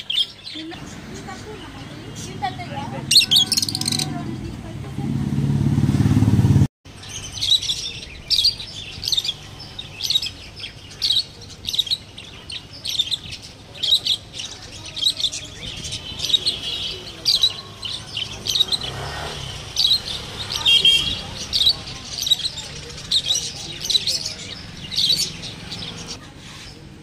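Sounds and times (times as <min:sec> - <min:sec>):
budgerigars chirping: 0:00.0 - 0:04.2, 0:07.0 - 0:26.2
loud low rumbling: 0:02.8 - 0:06.7.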